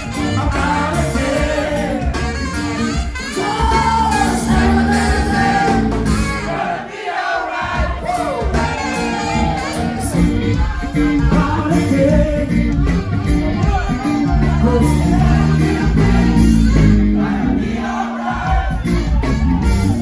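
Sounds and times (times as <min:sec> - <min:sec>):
steady bass: 0:00.0 - 0:06.5, 0:08.4 - 0:20.0
live band playing amplified music: 0:00.0 - 0:20.0
person singing: 0:09.7 - 0:17.5.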